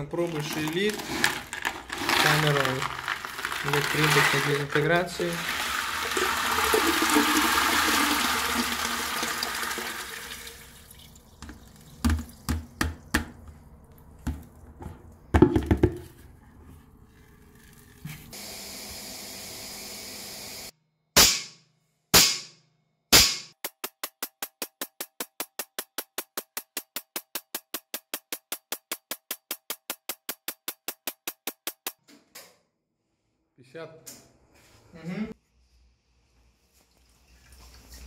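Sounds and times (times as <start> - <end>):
slag poured into water splashing: 0.2 - 12.0.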